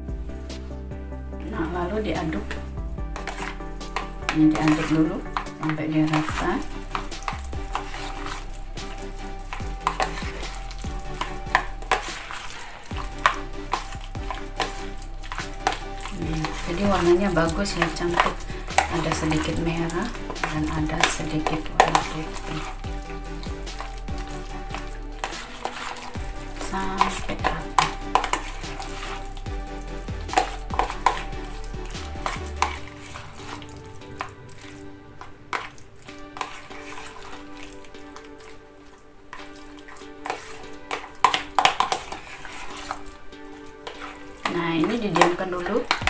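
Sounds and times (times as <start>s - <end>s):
utensil scraping sticky mixture: 1.4s - 46.0s
utensil knocking against tub: 23.7s - 32.8s.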